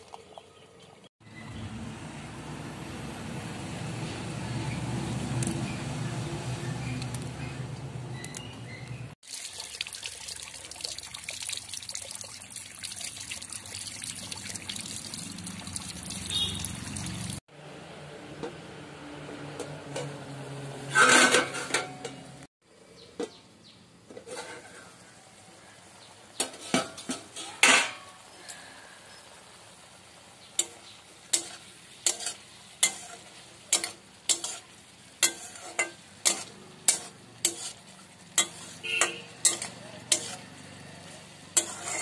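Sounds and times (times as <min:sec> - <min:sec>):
water running: 0:09.2 - 0:17.4
metal pan clattering: 0:20.9 - 0:22.3, 0:26.4 - 0:28.2, 0:30.6 - 0:37.8, 0:38.4 - 0:40.4, 0:41.6 - 0:42.0.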